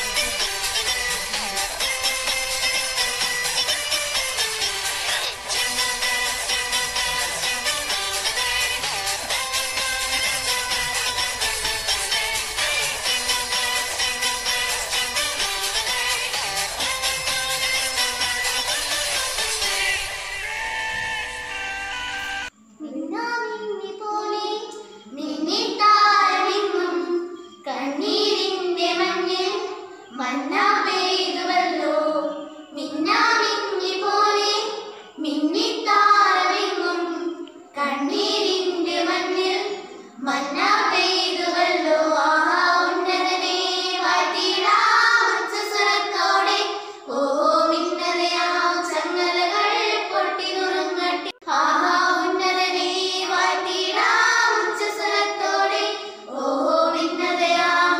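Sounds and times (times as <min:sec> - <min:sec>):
children singing: 0:00.0 - 0:57.9.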